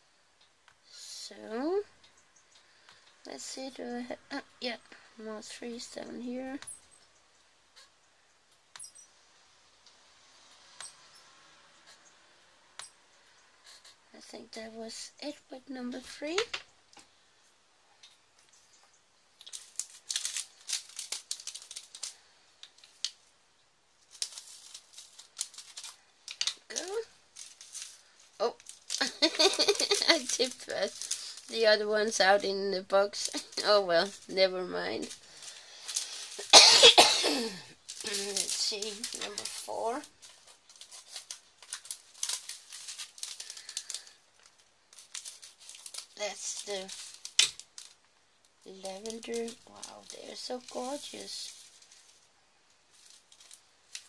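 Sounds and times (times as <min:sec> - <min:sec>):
plastic beads rattling in tray: 0:19.4 - 0:23.1, 0:24.1 - 0:36.6, 0:37.8 - 0:48.0, 0:48.7 - 0:52.2.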